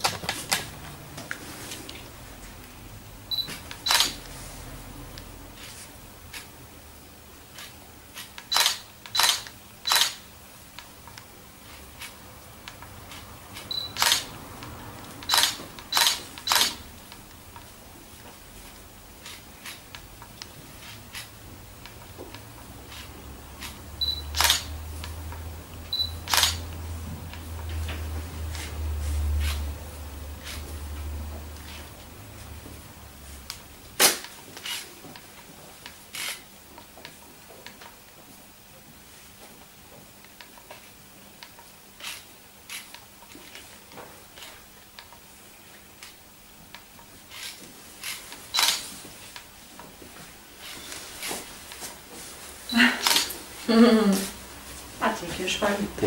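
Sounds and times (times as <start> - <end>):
camera beep: 3.3 - 4.2, 8.5 - 10.2, 13.7 - 14.2, 15.3 - 16.8, 24.0 - 24.7, 25.9 - 26.6, 48.5 - 48.8
camera shutter click: 3.5 - 4.2, 8.4 - 10.2, 13.7 - 14.3, 15.2 - 16.8, 24.4 - 24.7, 26.3 - 26.6, 47.4 - 48.8.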